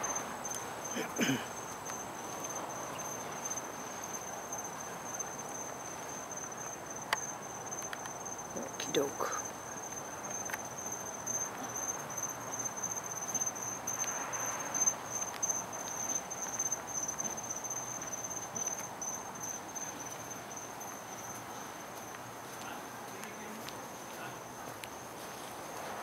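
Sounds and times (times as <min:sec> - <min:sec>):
crickets trilling: 0:00.0 - 0:26.0
soft shuffling: 0:20.0 - 0:26.0.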